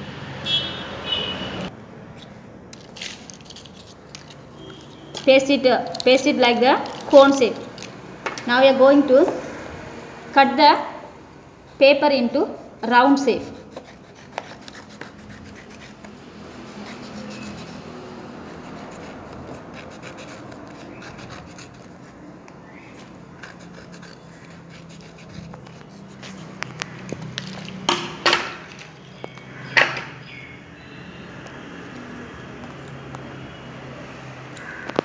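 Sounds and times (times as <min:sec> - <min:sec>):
scissors snipping paper: 0:02.7 - 0:08.0, 0:13.3 - 0:27.9
paper rustling: 0:02.8 - 0:05.3.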